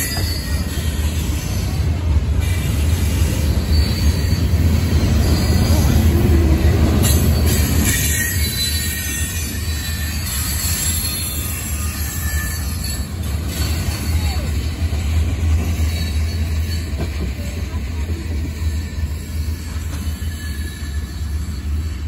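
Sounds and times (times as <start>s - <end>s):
high-pitched wheel squeal: 0.0s - 14.8s, 18.5s - 22.0s
freight train wheels rumbling: 0.0s - 22.0s.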